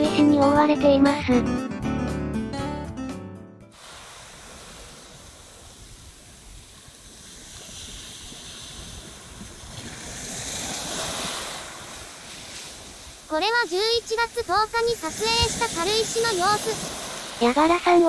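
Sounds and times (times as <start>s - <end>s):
sea waves washing in: 3.7s - 18.0s
wind on microphone: 3.9s - 18.0s.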